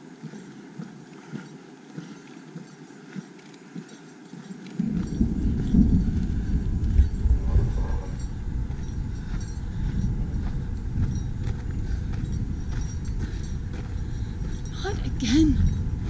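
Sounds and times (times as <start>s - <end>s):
bell jingling faintly: 0.0s - 16.0s
footsteps crunching on rocky trail: 0.0s - 16.0s
wind rumble on microphone: 4.8s - 16.0s.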